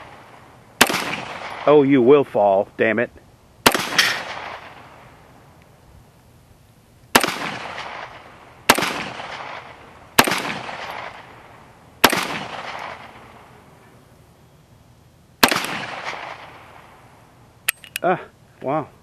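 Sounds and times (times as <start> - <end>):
pistol shots echoing: 0.0 - 1.8, 3.6 - 5.1, 7.1 - 13.5, 15.4 - 16.9.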